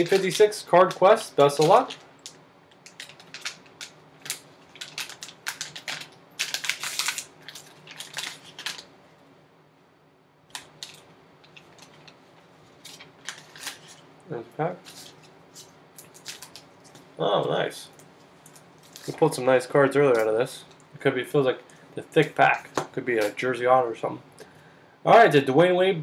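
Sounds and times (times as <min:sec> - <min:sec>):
foil pouch crinkling and tearing: 0:00.0 - 0:08.9, 0:10.5 - 0:14.0, 0:14.8 - 0:17.0, 0:18.8 - 0:19.4.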